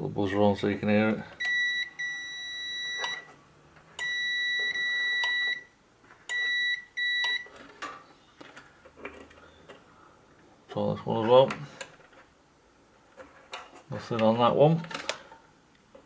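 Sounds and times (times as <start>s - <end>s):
multimeter continuity beeping: 1.4s - 3.3s, 4.0s - 7.5s.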